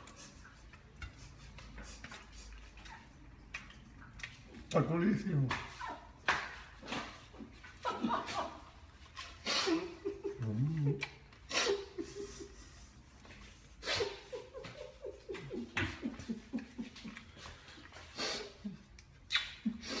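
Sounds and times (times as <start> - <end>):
woman laughing: 7.8 - 8.7, 13.8 - 17.4.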